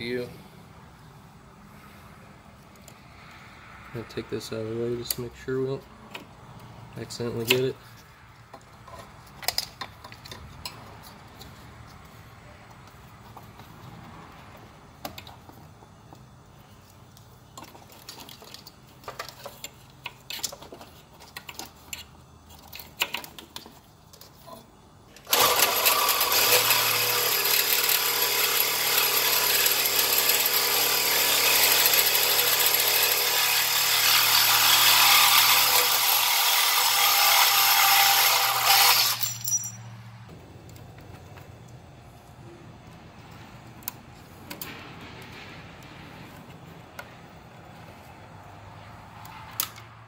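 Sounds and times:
clicks of parts being handled: 8.5s - 12.0s
power saw cutting metal: 25.2s - 39.7s.

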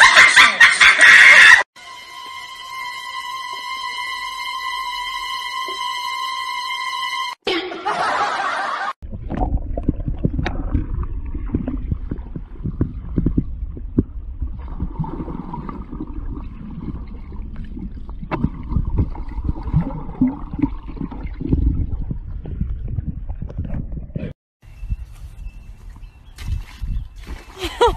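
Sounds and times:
knocks and clicks underwater: 9.0s - 16.0s, 16.6s - 24.3s
underwater gurgling water and bubbles: 9.0s - 24.3s.

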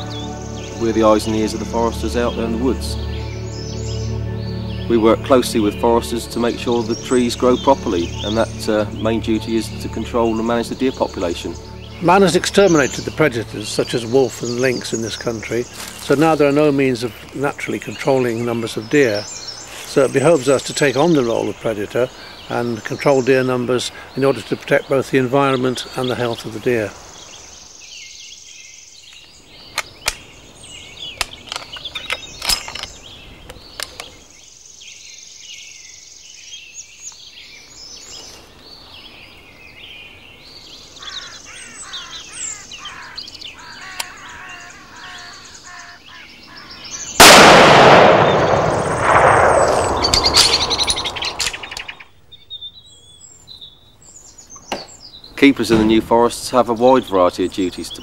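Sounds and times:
woodland birdsong: 0.0s - 58.0s
sharp clicks: 29.1s - 30.3s, 47.2s - 52.0s
loud rifle shot echoing: 47.2s - 52.0s.

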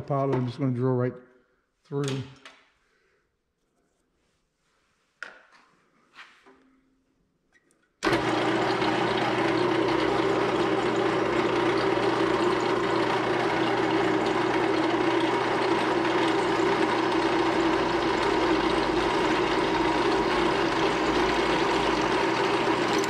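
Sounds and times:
drill press motor running: 8.0s - 23.0s.

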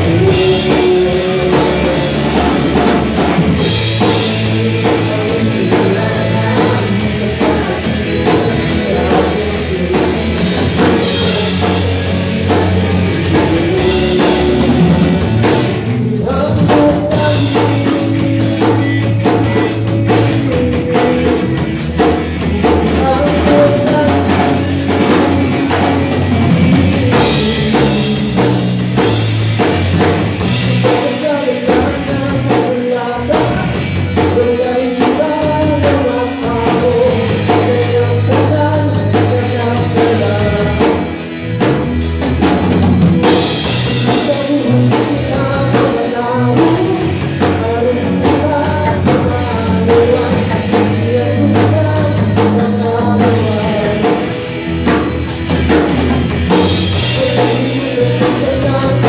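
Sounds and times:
drum kit: 0.0s - 59.0s
electric bass guitar: 0.0s - 59.0s
keyboard: 0.0s - 59.0s
man singing: 0.0s - 59.0s.

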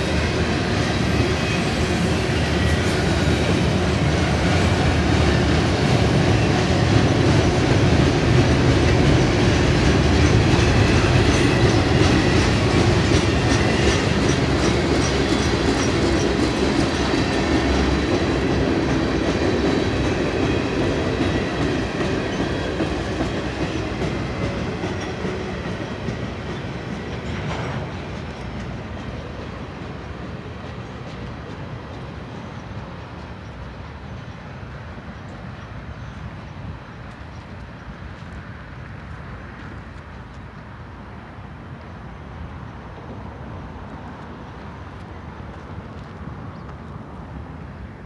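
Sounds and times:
train clank: 0.0s - 36.2s
train wheels clicking over rail joints: 0.0s - 47.6s.

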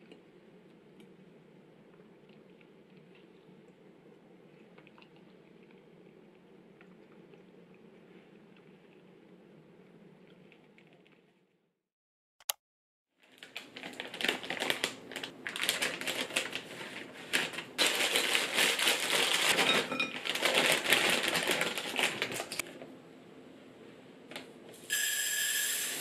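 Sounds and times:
plastic bag crinkling: 13.2s - 22.7s.

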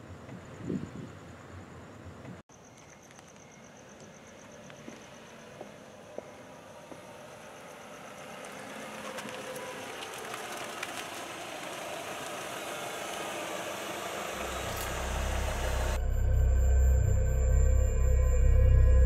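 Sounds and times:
car approaching slowly: 4.8s - 19.0s
deep low drone: 13.2s - 19.0s.

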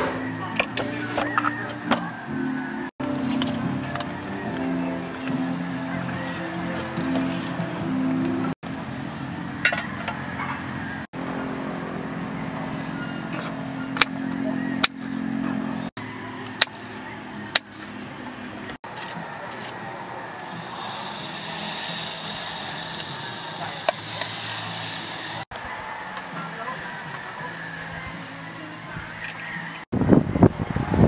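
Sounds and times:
butter hissing in hot pot: 20.4s - 25.4s.

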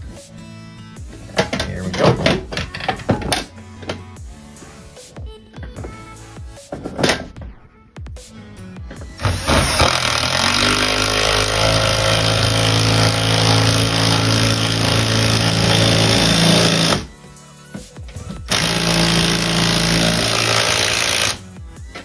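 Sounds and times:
impact driver hammering: 9.2s - 17.1s, 18.4s - 21.4s.

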